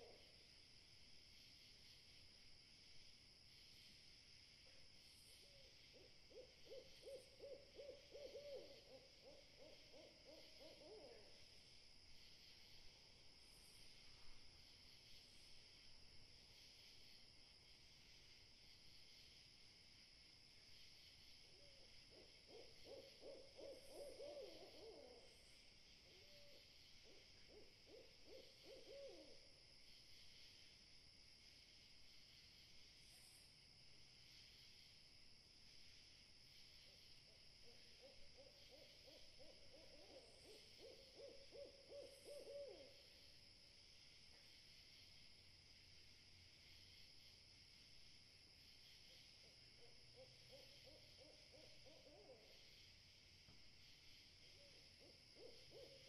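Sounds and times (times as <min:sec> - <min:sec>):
rapid hoots: 0:06.0 - 0:11.4, 0:21.5 - 0:25.4, 0:26.0 - 0:29.4, 0:37.6 - 0:43.1, 0:49.4 - 0:52.7, 0:54.5 - 0:56.0
steady high hiss: 0:42.1 - 0:51.3, 0:52.3 - 0:55.7.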